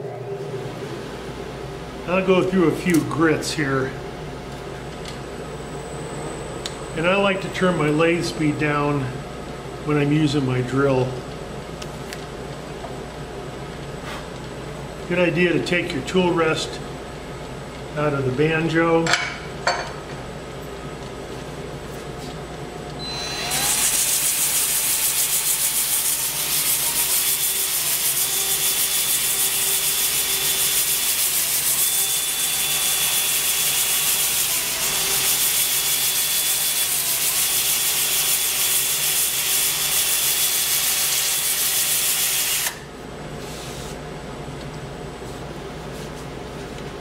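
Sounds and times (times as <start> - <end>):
drill sanding wood: 23.2 - 42.8.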